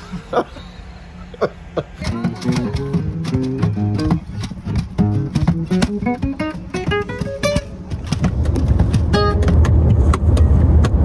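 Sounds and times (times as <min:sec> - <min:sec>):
acoustic guitar picking notes: 0:02.0 - 0:09.9.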